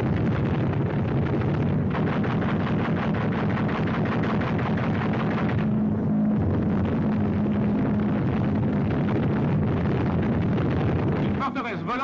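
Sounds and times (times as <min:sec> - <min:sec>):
rapid gunfire: 0:00.0 - 0:05.7
aircraft piston engines droning: 0:00.0 - 0:12.0.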